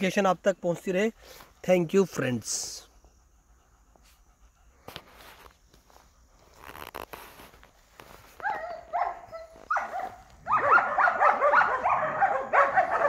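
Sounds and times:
dog barking and yelping: 8.3s - 13.0s.

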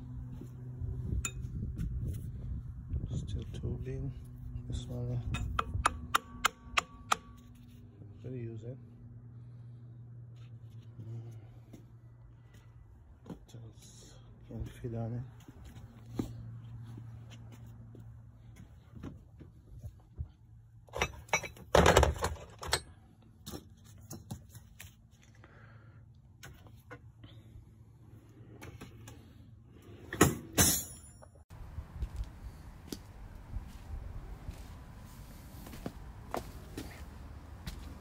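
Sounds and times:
metal tools clinking: 20.9s - 23.0s, 30.2s - 31.4s.

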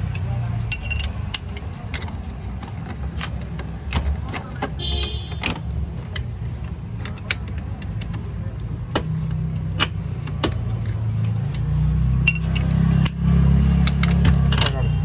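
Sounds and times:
wrench clicking: 0.0s - 2.3s, 7.0s - 14.2s
engine humming: 0.0s - 15.0s.

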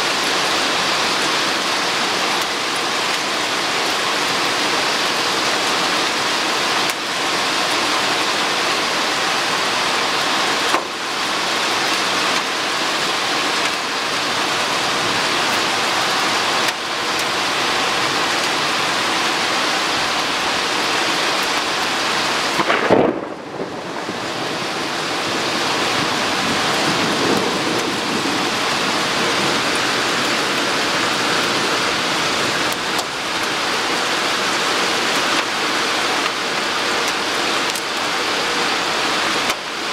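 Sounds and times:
heavy rain pouring: 0.0s - 39.9s
sharp thunderclap: 22.6s - 24.6s.

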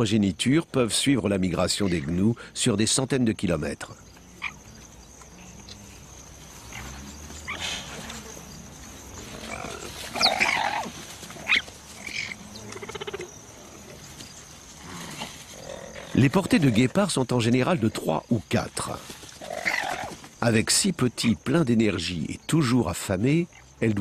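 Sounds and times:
cheetah cubs growling and calling: 4.0s - 17.1s, 19.2s - 20.4s.

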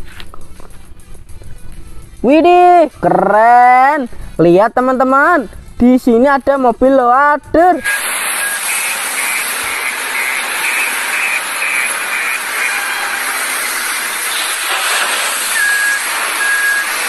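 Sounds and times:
short high beeps: 7.8s - 13.4s, 15.4s - 17.0s
wheel loader hissing: 7.8s - 17.0s
coal spilling into wagon: 14.2s - 16.9s.

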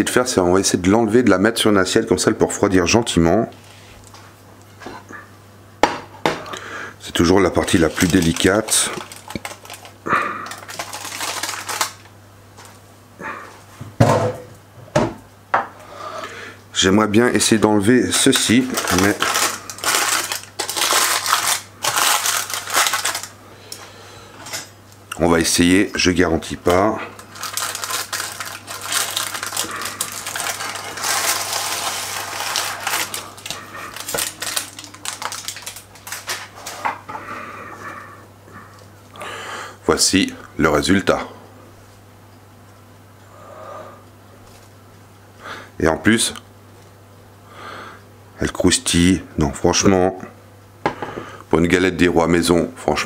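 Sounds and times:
baking parchment crinkling: 7.1s - 12.8s, 17.8s - 23.4s, 26.1s - 37.0s.

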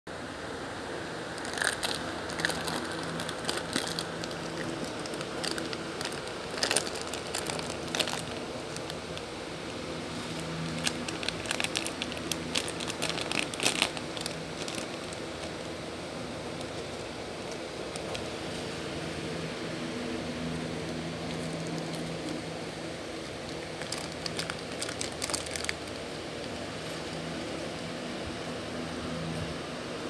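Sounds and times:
dog chewing plastic wrapper: 1.4s - 9.3s, 10.2s - 15.7s, 16.5s - 18.3s, 21.2s - 22.4s, 23.4s - 27.0s.

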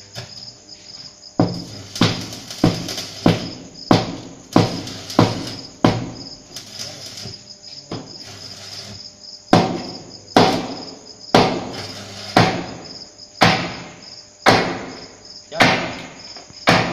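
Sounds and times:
hammer blows on metal: 1.4s - 7.3s.

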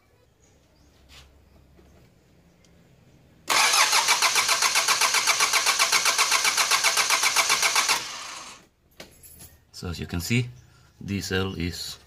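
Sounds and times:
diesel engine cranking: 3.4s - 8.7s.

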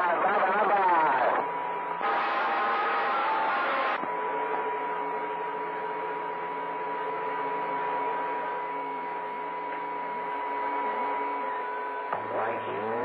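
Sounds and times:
radio whistling tones: 0.0s - 4.0s.

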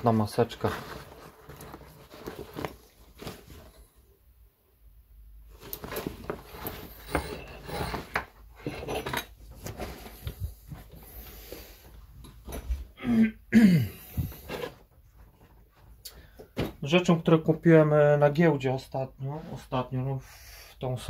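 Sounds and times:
canvas bag rustling: 0.0s - 3.9s, 5.5s - 8.2s
fittings clattering on wooden table: 6.9s - 9.4s.

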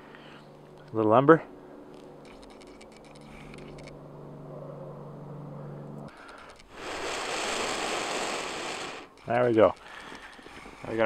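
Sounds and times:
low engine-like hum: 0.0s - 6.8s
loud rush of air: 6.7s - 9.1s.

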